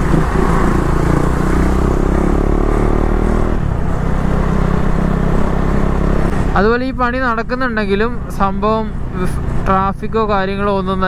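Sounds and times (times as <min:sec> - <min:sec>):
motorcycle engine accelerating: 0:00.0 - 0:06.6.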